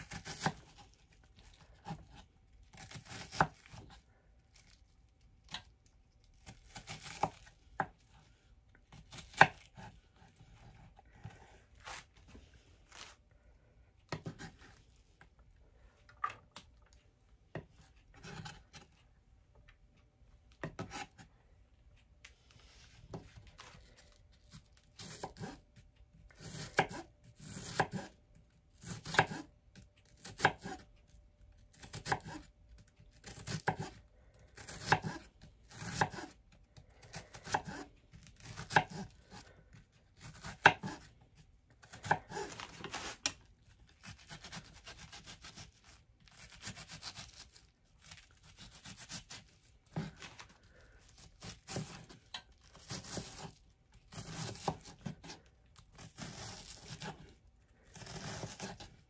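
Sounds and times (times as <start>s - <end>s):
knife cutting onion on board: 0.0s - 1.0s, 1.6s - 4.0s, 6.4s - 8.2s, 8.9s - 12.0s, 14.1s - 14.7s, 17.5s - 18.9s, 20.6s - 21.3s, 24.5s - 25.6s, 26.4s - 28.2s, 28.8s - 30.9s, 31.7s - 32.5s, 33.1s - 34.0s, 34.6s - 36.4s, 37.0s - 41.2s, 41.8s - 43.4s, 44.0s - 50.3s, 51.1s - 57.3s, 57.9s - 59.0s.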